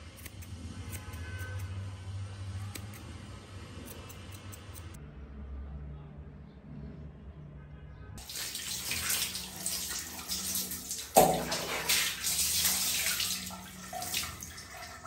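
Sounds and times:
water splashing over cat: 8.2s - 15.0s.

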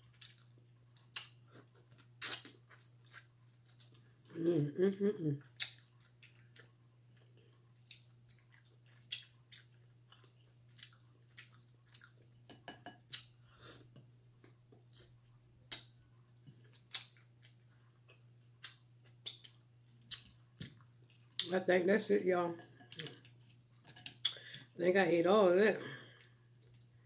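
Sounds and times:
person chewing wetly: 0.0s - 4.3s, 5.4s - 21.5s.

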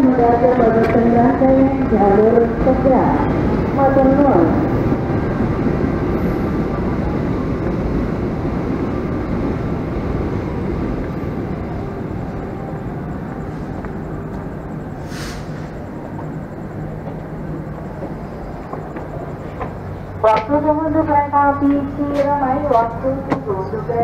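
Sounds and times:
diesel train idling: 0.0s - 24.0s
short hiss: 15.0s - 15.8s.

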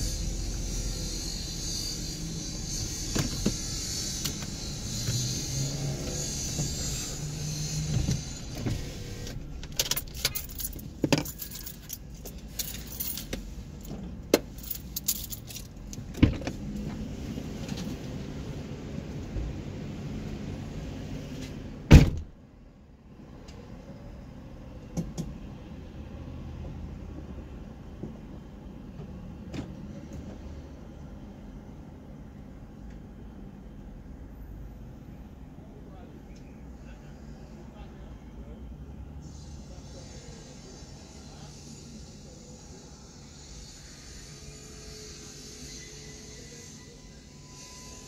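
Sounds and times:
loud thump: 21.9s - 22.3s.

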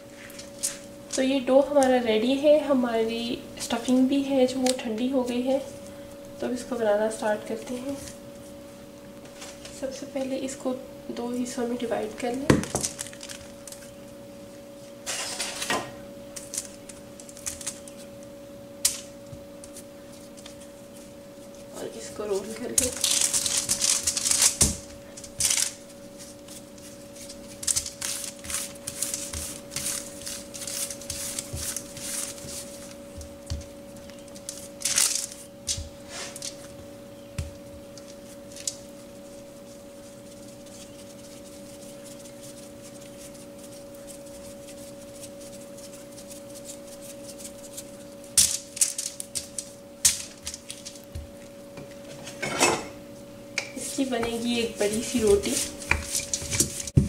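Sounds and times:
steady low hum: 0.0s - 57.0s
aluminium foil crinkling: 12.2s - 14.1s, 16.3s - 36.8s, 37.8s - 51.5s, 53.8s - 57.0s.

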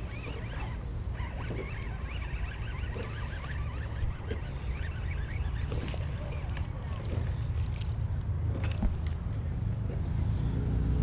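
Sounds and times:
fishing reel cranking: 0.0s - 8.0s.

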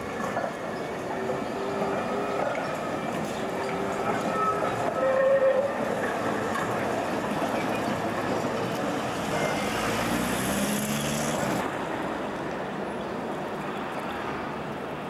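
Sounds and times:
tram rolling past: 0.0s - 15.0s
road traffic: 5.7s - 15.0s
car driving by: 9.1s - 11.6s.

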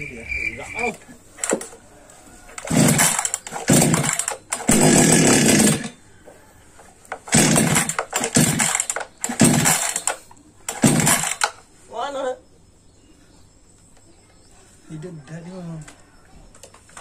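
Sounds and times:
chainsaw engine firing in bursts: 1.4s - 1.7s, 2.5s - 6.0s, 7.1s - 11.6s.

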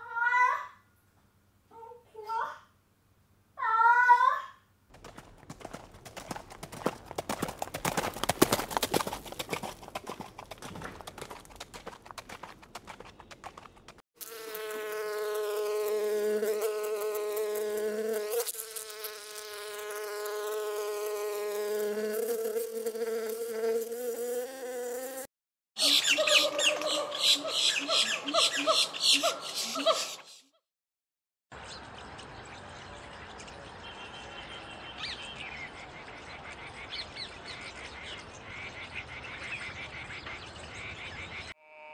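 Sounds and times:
horse hoofbeats: 4.9s - 14.0s
bees buzzing: 14.2s - 25.3s.

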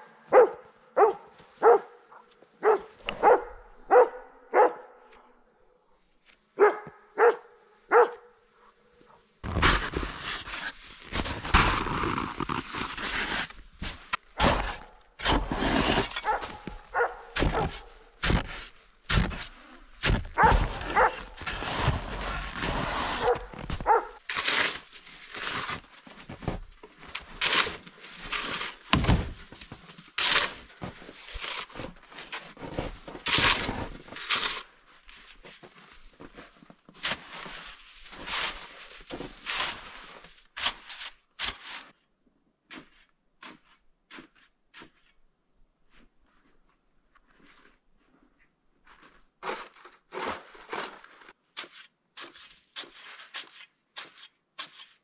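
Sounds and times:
shovel scraping and crunching snow: 2.6s - 5.2s, 9.2s - 42.1s, 42.7s - 45.2s, 47.2s - 55.0s
snow blocks thudding: 9.4s - 34.2s.

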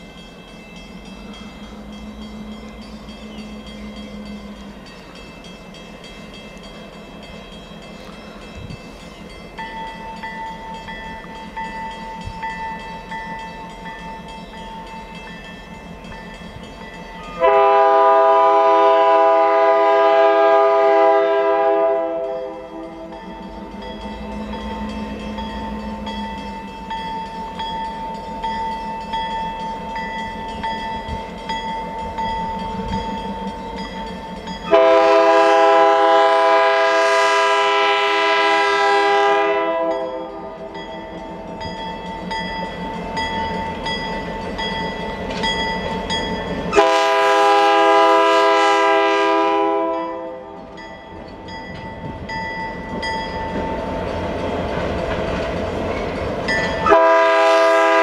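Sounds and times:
locomotive engine and rail noise: 0.0s - 58.0s
train air horn blasts: 17.4s - 26.1s, 34.7s - 40.8s, 46.7s - 50.7s, 56.8s - 58.0s.

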